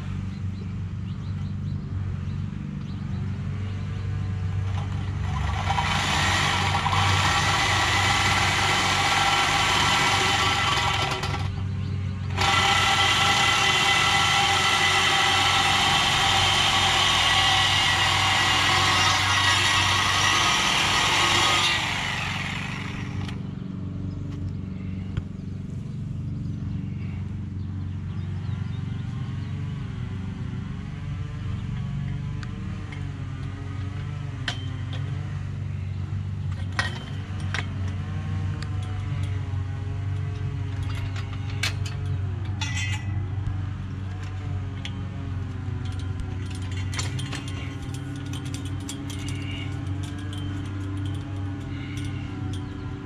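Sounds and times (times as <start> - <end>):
steady low hum: 0.0 - 53.0
reciprocating saw cutting steel: 4.8 - 11.6, 12.3 - 23.4
metal tube clinking against fence: 40.1 - 43.3, 45.7 - 53.0.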